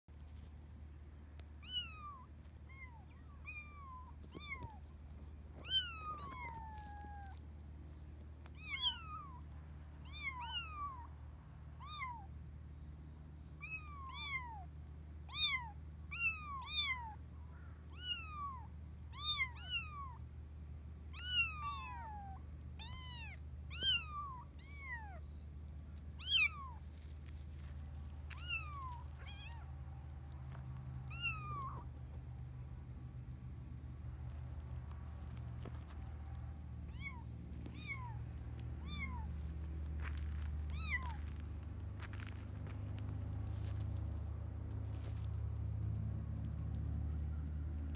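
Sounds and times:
kitten meowing: 0:21.2 - 0:25.2, 0:36.9 - 0:38.2.

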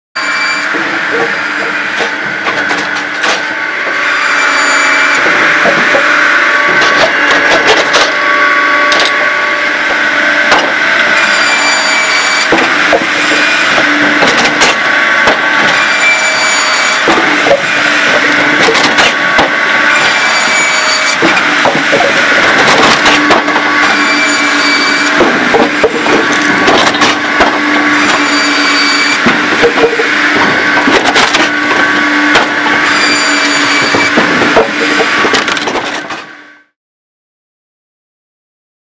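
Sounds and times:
circular saw blade whine: 0:00.2 - 0:35.4
machine drone: 0:00.2 - 0:36.8
logs splitting and falling: 0:04.5 - 0:08.2, 0:10.5 - 0:36.2.

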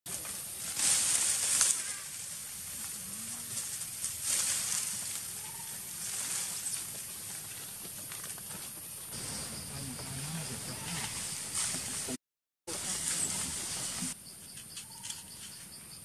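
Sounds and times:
rustling in dry leaves: 0:00.1 - 0:10.1, 0:10.7 - 0:14.2
steady hiss: 0:09.1 - 0:14.2.

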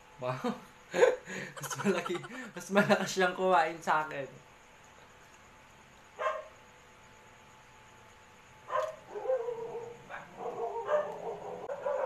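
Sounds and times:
dog barking: 0:06.2 - 0:06.6, 0:08.7 - 0:12.0
dog yipping: 0:08.7 - 0:12.0.

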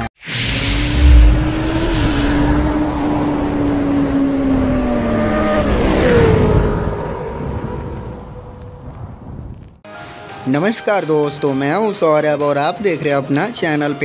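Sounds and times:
motorcycle engine revving high: 0:00.4 - 0:07.3.

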